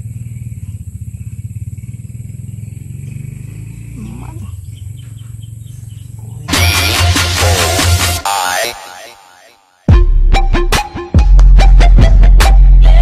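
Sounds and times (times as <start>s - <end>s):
small engine running: 0.0s - 8.2s
animal call: 0.0s - 9.7s
loud electronic music: 6.5s - 13.0s.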